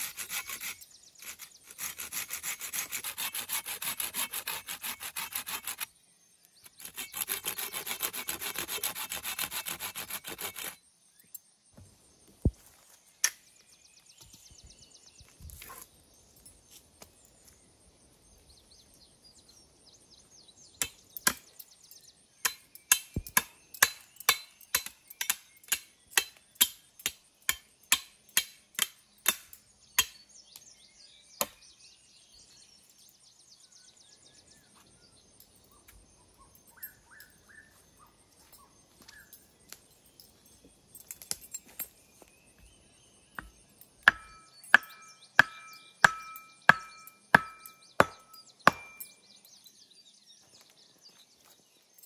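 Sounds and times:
wood chopping strikes: 0:43.4 - 0:49.0.

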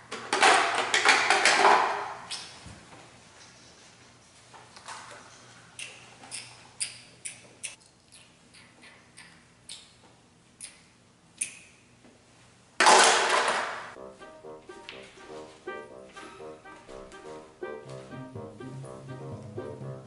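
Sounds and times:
background music: 0:14.0 - 0:20.0.

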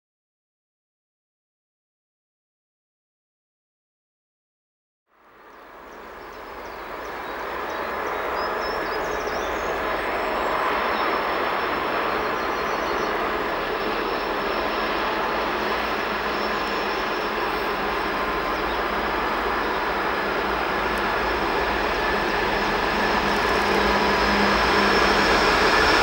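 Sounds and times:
diesel locomotive engines droning: 0:05.1 - 0:26.0.

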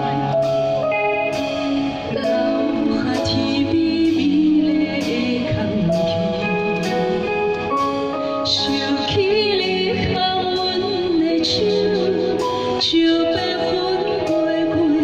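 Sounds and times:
woman singing: 0:00.0 - 0:07.6, 0:08.4 - 0:15.0
instrumental accompaniment: 0:00.0 - 0:15.0.

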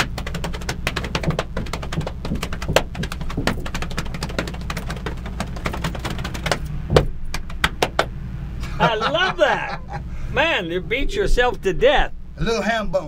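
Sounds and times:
hands slapping body: 0:00.0 - 0:08.1.

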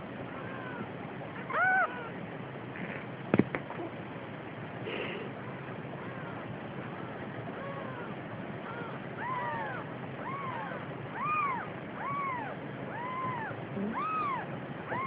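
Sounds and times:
kittens mewing: 0:00.3 - 0:02.2, 0:04.9 - 0:15.0.

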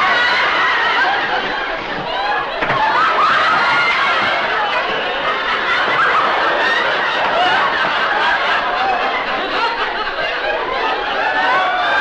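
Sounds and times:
studio audience laughing: 0:00.0 - 0:12.0.

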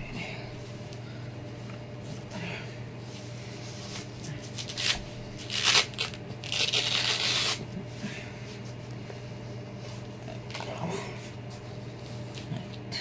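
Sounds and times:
hook-and-loop straps ripping: 0:04.5 - 0:07.6.

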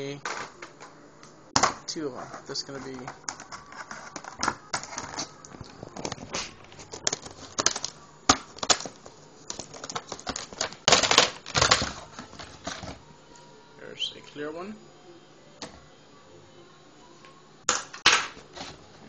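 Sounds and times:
plastic scraping: 0:01.6 - 0:13.0.

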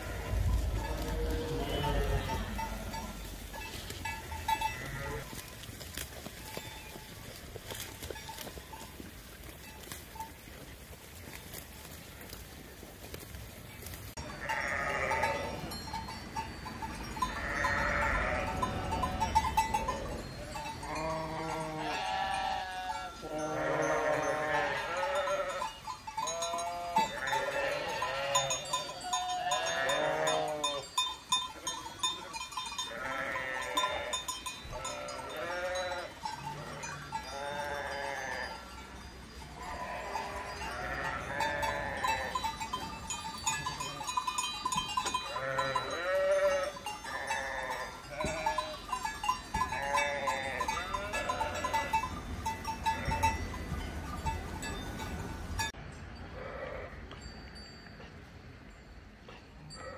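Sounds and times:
sheep bleating: 0:00.0 - 0:03.3, 0:04.6 - 0:05.4, 0:14.4 - 0:15.7, 0:17.3 - 0:25.6, 0:26.2 - 0:30.8, 0:32.9 - 0:34.2, 0:34.8 - 0:38.5, 0:39.6 - 0:42.4, 0:45.3 - 0:48.8, 0:49.6 - 0:52.0
small bells clinking: 0:00.0 - 0:11.6, 0:13.8 - 0:59.9.

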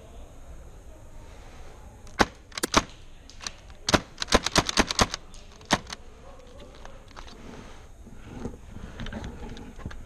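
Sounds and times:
airsoft gun shots: 0:02.1 - 0:06.0.

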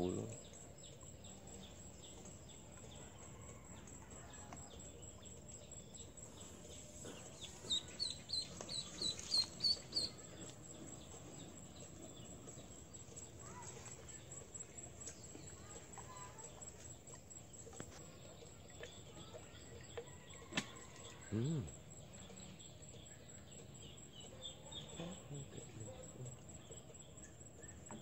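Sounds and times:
faint outdoor background: 0:00.0 - 0:28.0
duckling peeping: 0:07.4 - 0:10.2.

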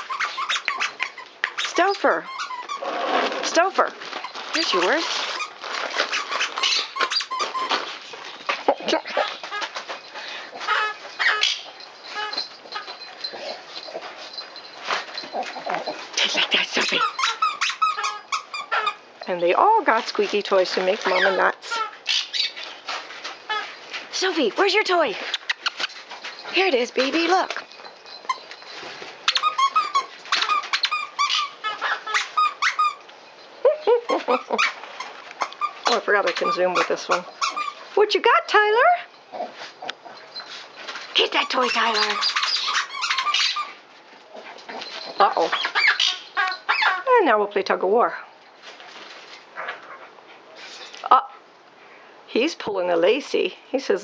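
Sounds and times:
short squeaks: 0:00.0 - 0:08.0, 0:25.2 - 0:37.9, 0:40.1 - 0:43.8
wrapping paper ripping: 0:03.2 - 0:08.2.

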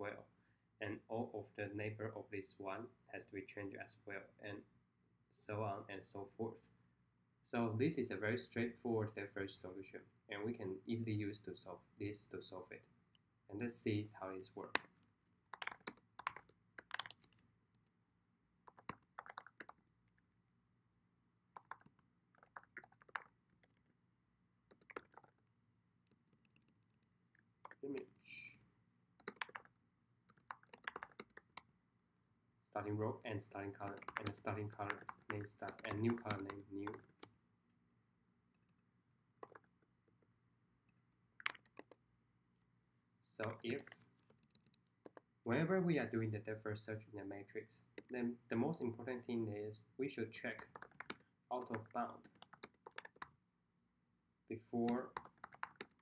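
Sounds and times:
faint computer keyboard typing: 0:14.6 - 0:17.5, 0:18.6 - 0:20.2, 0:21.5 - 0:24.0, 0:24.6 - 0:28.6, 0:29.2 - 0:31.7, 0:33.6 - 0:37.4, 0:39.4 - 0:40.3, 0:41.4 - 0:42.0, 0:43.4 - 0:45.4, 0:48.0 - 0:48.4, 0:50.4 - 0:53.4, 0:54.8 - 0:56.0.

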